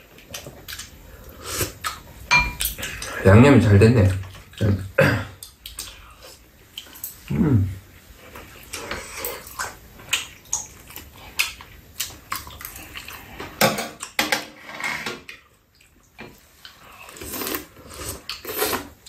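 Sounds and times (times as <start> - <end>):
chopsticks clicking against bowls: 5.4 - 6.0
wet chewing and lip-smacking: 8.3 - 13.4.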